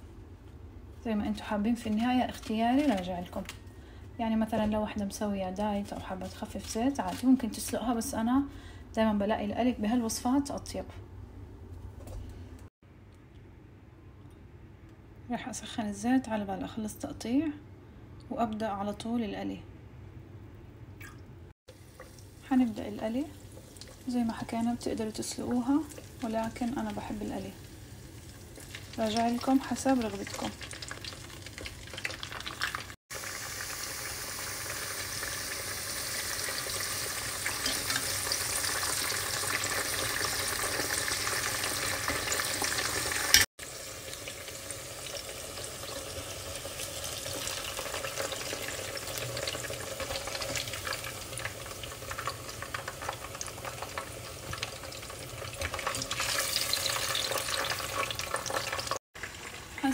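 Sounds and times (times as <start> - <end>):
vegetables sizzling in hot oil: 21.7 - 59.9.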